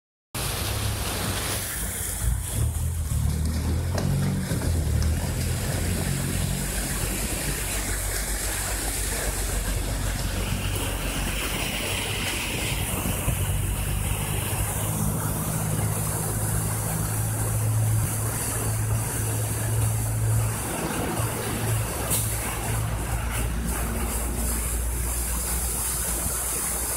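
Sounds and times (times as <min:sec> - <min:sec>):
floodwater rushing: 0:00.4 - 0:26.9
heavy rain: 0:00.4 - 0:26.9
vehicle engine humming: 0:00.4 - 0:26.9.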